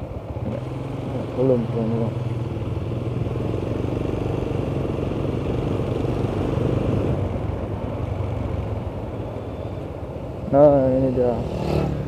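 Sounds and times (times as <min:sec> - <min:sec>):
motorcycle engine humming: 0:00.0 - 0:12.0
rushing road noise: 0:00.0 - 0:12.0.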